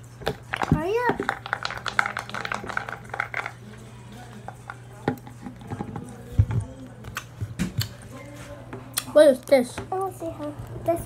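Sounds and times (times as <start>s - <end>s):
muffled voices: 0.5s - 11.0s.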